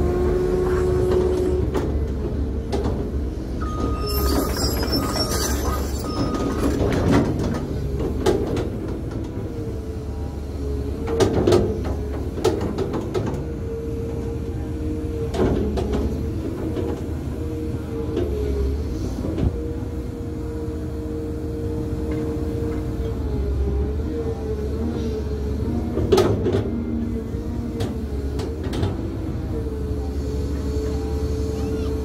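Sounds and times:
diesel engine under load: 0.0s - 32.0s
hydraulic whine: 3.6s - 7.2s.

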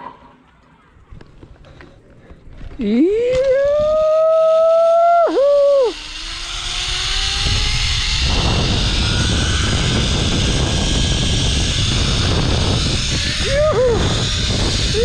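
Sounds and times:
zip-line pulleys whining on cable: 2.8s - 15.0s
wind buffeting microphone: 6.0s - 15.0s.

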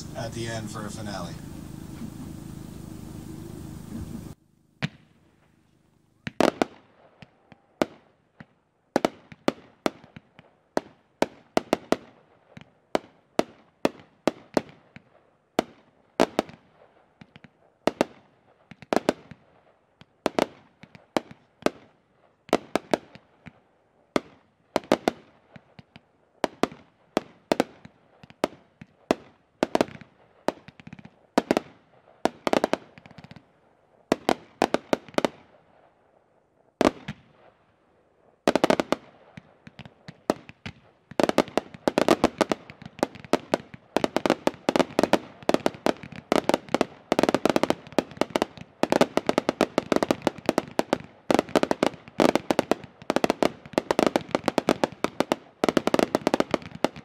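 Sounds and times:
firework cakes popping: 3.8s - 12.0s, 38.5s - 57.0s.

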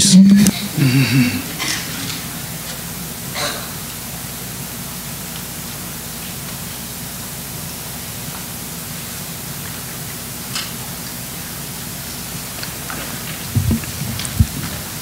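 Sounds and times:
steady background hiss: 0.0s - 15.0s
low hum: 13.3s - 15.0s.

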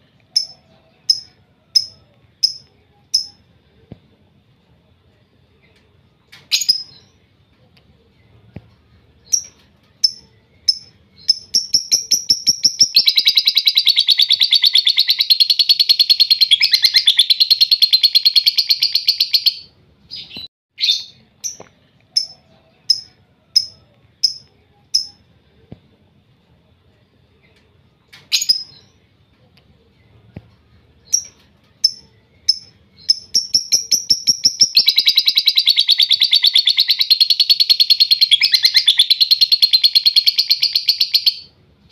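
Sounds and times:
bird chirps: 0.3s - 3.4s, 9.2s - 25.2s, 31.0s - 41.5s.

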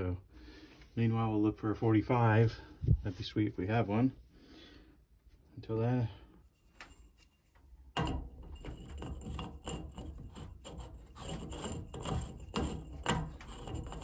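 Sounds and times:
hands scraping metal pipe: 6.4s - 14.0s.

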